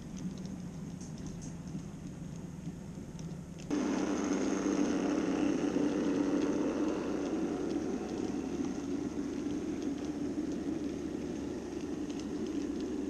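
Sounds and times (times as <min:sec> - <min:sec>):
faint clicking: 0:00.0 - 0:13.0
wheels rumbling on track: 0:00.0 - 0:13.0
model train motor hum: 0:03.7 - 0:13.0.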